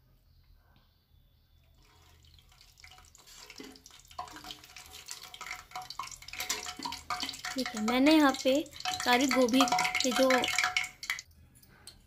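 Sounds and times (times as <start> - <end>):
food frying in hot oil: 1.8 - 11.3.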